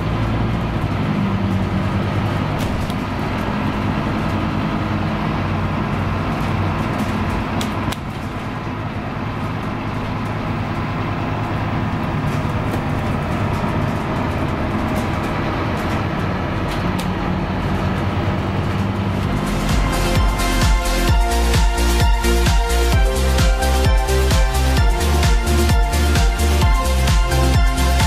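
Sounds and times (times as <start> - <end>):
bus diesel engine droning: 0.0 - 28.0
road noise: 0.0 - 28.0.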